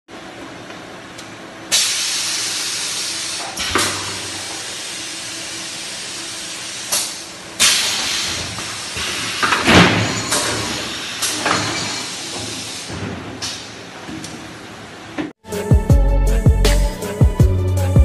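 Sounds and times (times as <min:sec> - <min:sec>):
sharp hisses of air: 0:01.7 - 0:09.7.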